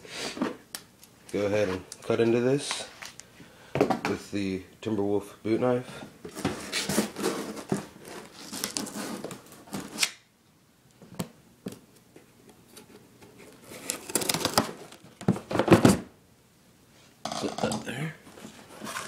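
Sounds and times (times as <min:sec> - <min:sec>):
cardboard flaps rustling open: 0:13.4 - 0:16.0.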